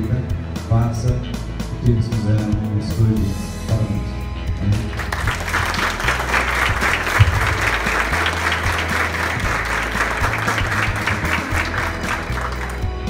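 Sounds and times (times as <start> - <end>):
music playing: 0.0 - 13.0
group of people clapping: 4.9 - 13.0.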